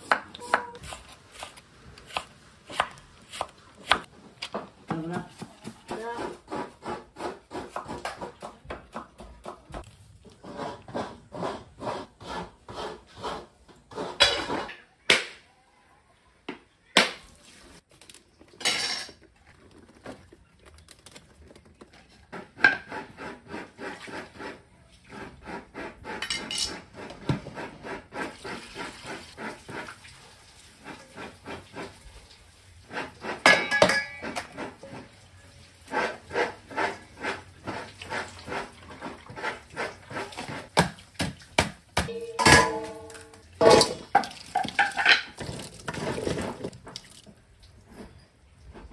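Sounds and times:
dishes clinking: 18.6s - 19.2s, 33.4s - 34.5s, 42.1s - 45.4s.

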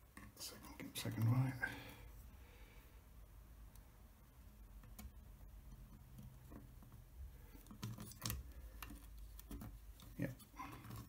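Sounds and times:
clicks and taps of handling: 4.8s - 11.0s.

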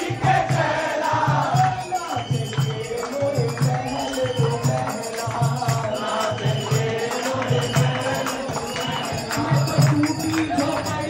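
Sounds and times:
hand drum beat: 0.0s - 11.0s
jingling percussion: 0.0s - 11.0s
person singing into a microphone: 0.0s - 11.0s.

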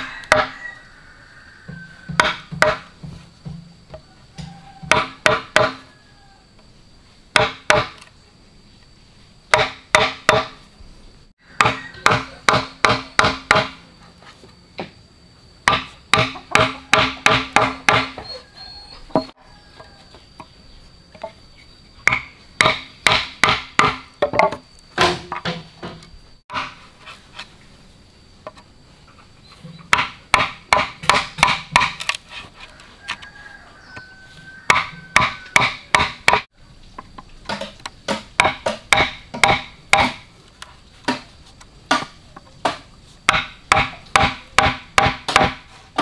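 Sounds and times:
chopping blows on wood: 2.1s - 3.6s, 4.9s - 5.8s, 11.6s - 13.8s, 15.7s - 18.2s, 22.0s - 25.6s, 29.9s - 32.1s, 34.7s - 36.5s, 37.5s - 40.3s, 41.9s - 46.0s.

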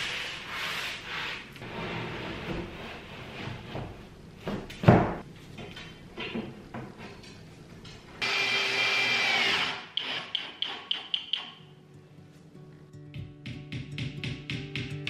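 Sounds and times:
cordless drill driving screw: 8.2s - 10.8s.

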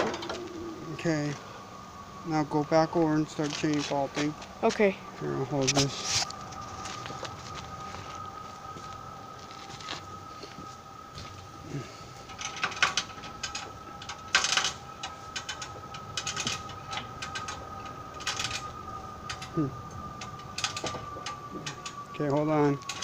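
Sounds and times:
chain hoist ratcheting clicks: 12.3s - 23.0s.

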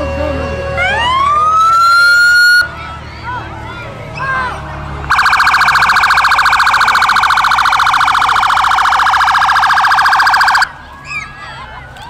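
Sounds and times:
electronic siren fast-pulsing tone: 5.1s - 10.7s.

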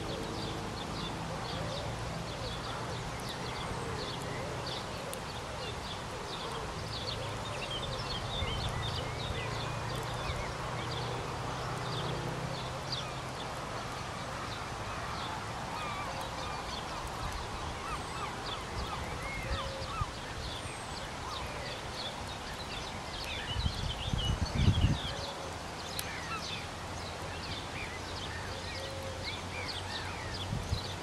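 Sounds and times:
outdoor background noise: 0.0s - 31.0s
birds chirping and calling: 14.5s - 31.0s.

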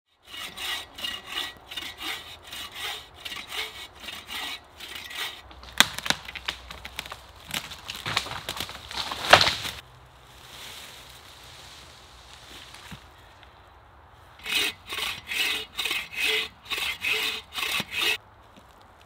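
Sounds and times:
hand saw cutting wood: 0.2s - 5.9s, 14.4s - 18.2s
wood cracking and splintering: 5.4s - 9.8s.

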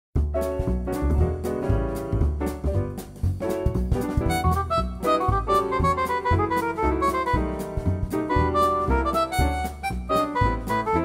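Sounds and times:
jazzy piano music: 0.2s - 11.0s.

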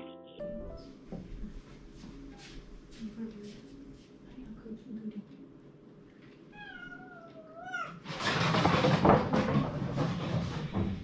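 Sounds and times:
cat meowing: 6.5s - 8.1s.

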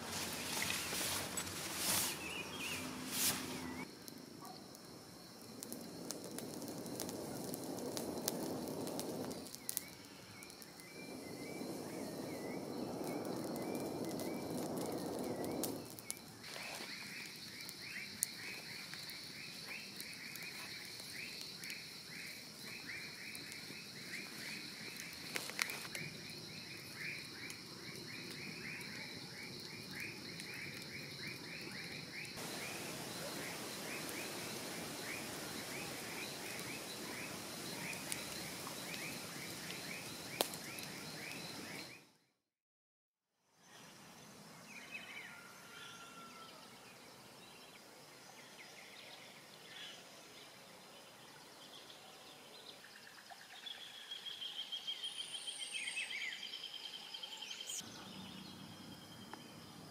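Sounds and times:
campfire crackling: 0.0s - 42.0s
high insect drone: 0.0s - 42.0s
frogs calling: 26.6s - 41.9s.

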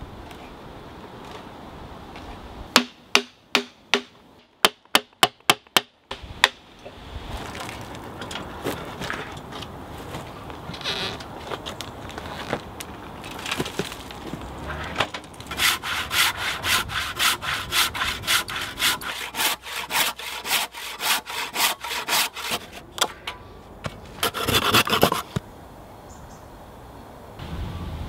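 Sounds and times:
handsaw cutting wood: 15.5s - 22.9s, 24.2s - 25.4s.

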